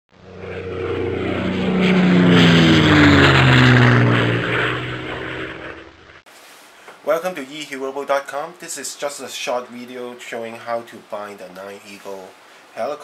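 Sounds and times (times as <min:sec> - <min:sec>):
propeller aircraft flying past: 0:00.1 - 0:06.2.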